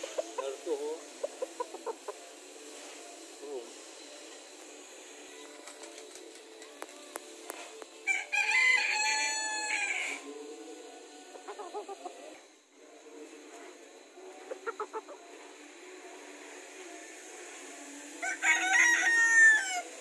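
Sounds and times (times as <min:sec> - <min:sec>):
chicken clucking: 0:00.0 - 0:02.4, 0:11.3 - 0:12.4, 0:14.2 - 0:15.6
rooster crowing: 0:08.1 - 0:10.2, 0:18.2 - 0:20.0.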